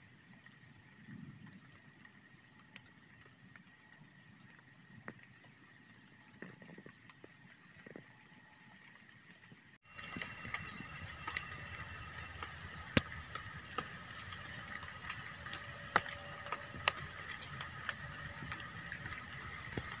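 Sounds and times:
campfire crackling and popping: 0.0 - 20.0
insects chorus: 9.8 - 20.0.

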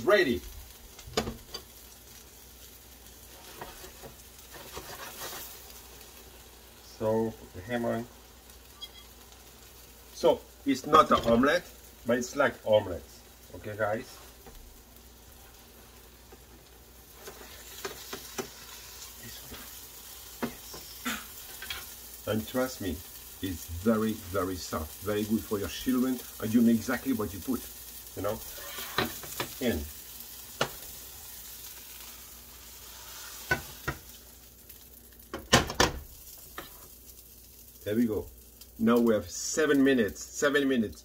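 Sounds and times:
batter sizzling in a skillet: 0.0 - 41.0
utensil scraping frying pan: 3.2 - 6.3, 8.7 - 9.2, 15.4 - 22.6, 25.2 - 34.2, 35.4 - 37.0
spatula scraping and tapping pan: 3.3 - 5.6, 17.2 - 21.9, 28.4 - 29.6, 30.6 - 30.9, 33.0 - 34.2, 36.5 - 36.9.

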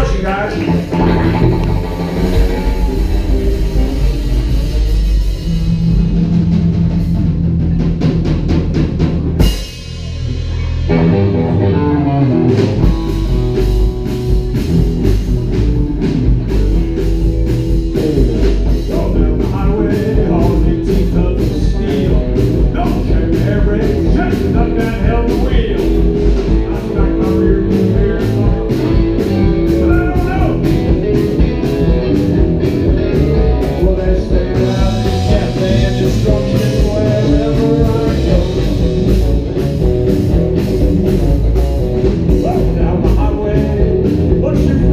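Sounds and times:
rockabilly band playing: 0.0 - 44.9
loud hit: 1.0 - 7.9.

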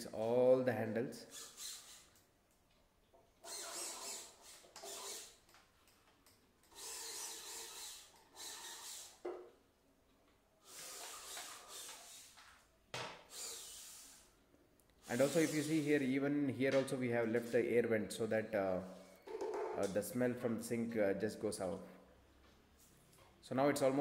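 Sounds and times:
screwdriver grinding and rubbing: 1.3 - 2.2, 3.4 - 5.6, 6.6 - 9.2, 10.6 - 12.5, 13.3 - 14.3, 15.0 - 16.0.

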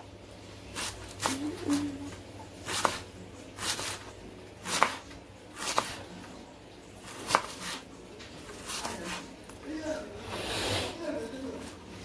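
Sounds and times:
knife slicing onion on board: 0.7 - 6.3, 7.0 - 9.6.

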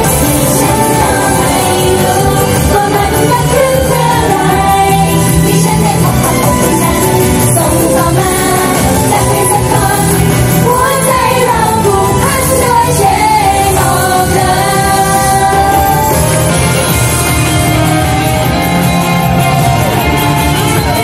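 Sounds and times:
women singing: 0.0 - 16.7
pop song played loud: 0.0 - 21.0.

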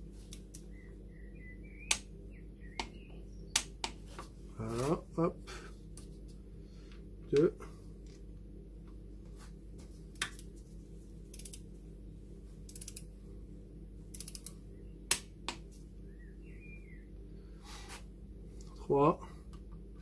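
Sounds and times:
ratchet torque wrench clicking: 11.3 - 11.6, 12.7 - 13.0, 14.1 - 14.5.

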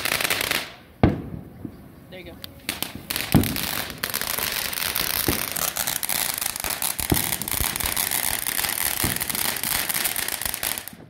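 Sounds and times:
fireworks crackling and hissing: 0.0 - 11.0.

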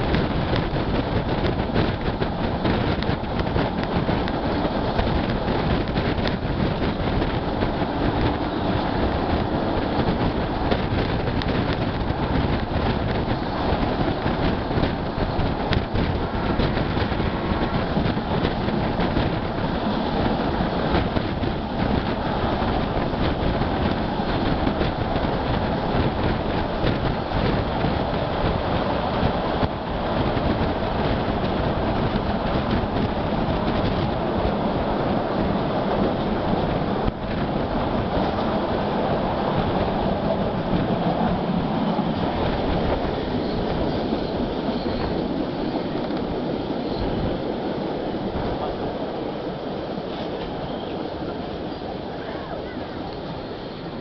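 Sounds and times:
train wheels rumbling on rail: 0.0 - 54.0.

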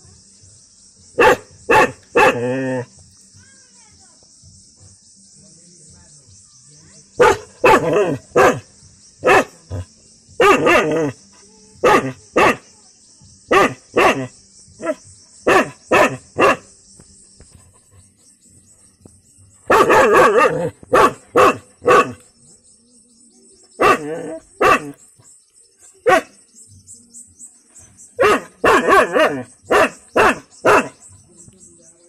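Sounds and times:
dog barking: 1.2 - 2.5, 7.2 - 8.6, 9.2 - 9.8, 10.4 - 11.2, 11.8 - 12.6, 13.5 - 16.6, 19.7 - 22.2, 23.8 - 25.0, 26.0 - 26.3, 28.2 - 31.0.

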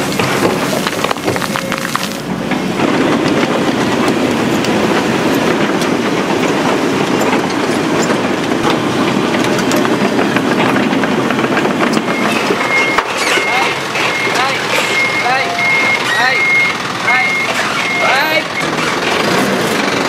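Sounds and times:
construction machinery rattling: 0.0 - 20.0.

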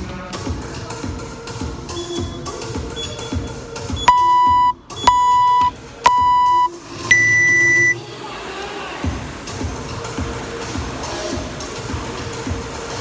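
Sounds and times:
longer higher beep: 4.0 - 8.0
timer countdown beeps: 4.0 - 8.0.

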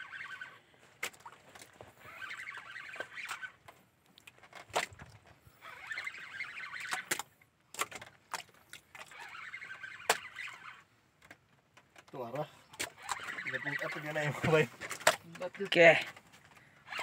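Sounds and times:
fishing reel cranking: 0.0 - 0.7, 2.0 - 3.8, 5.4 - 8.0, 8.9 - 10.9, 12.8 - 16.1
rod and reel clicks: 0.0 - 17.0.

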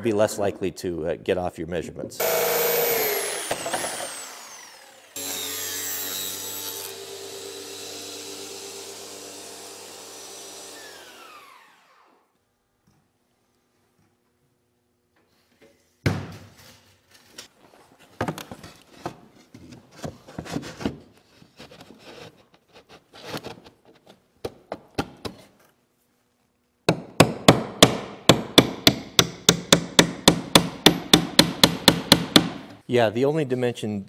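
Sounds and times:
hammer tapping a nail: 26.9 - 32.6.

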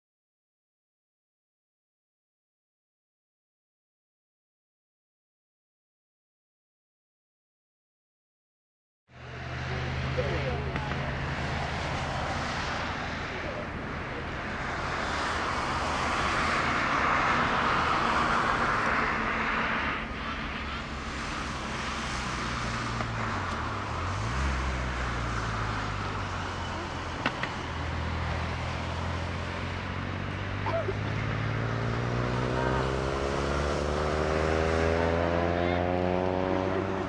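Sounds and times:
distant jet roar: 9.2 - 37.0.

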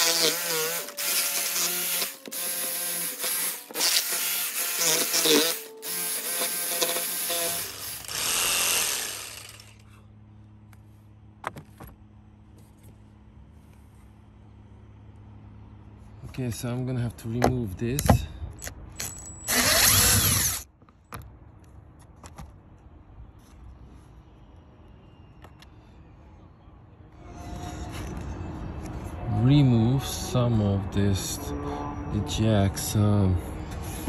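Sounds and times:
jigsaw cutting metal and wood: 0.0 - 9.8, 19.5 - 20.6.

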